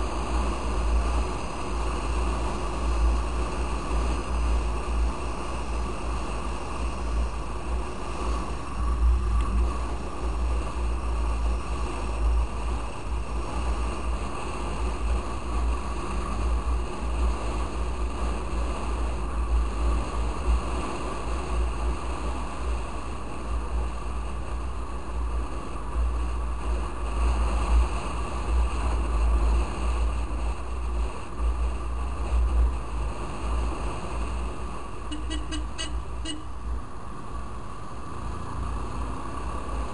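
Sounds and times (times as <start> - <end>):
road noise: 0.0 - 39.9
motorcycle engine: 35.1 - 39.9.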